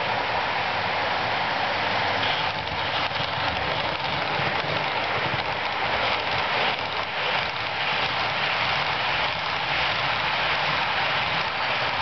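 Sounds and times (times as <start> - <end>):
model train rolling on track: 0.0 - 12.0.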